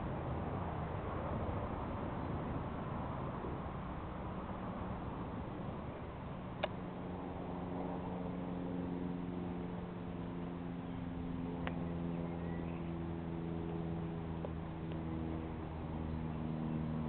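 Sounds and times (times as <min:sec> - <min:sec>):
steady engine drone: 0:00.0 - 0:17.0.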